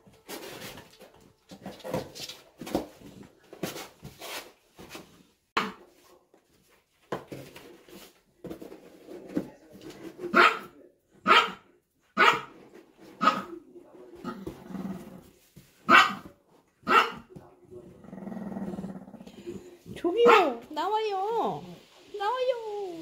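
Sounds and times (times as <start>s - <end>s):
cardboard boxes scraping and rustling: 0.1s - 5.2s
dog barking: 10.3s - 11.6s, 12.2s - 12.5s, 13.2s - 13.5s, 15.9s - 17.3s, 20.2s - 20.6s.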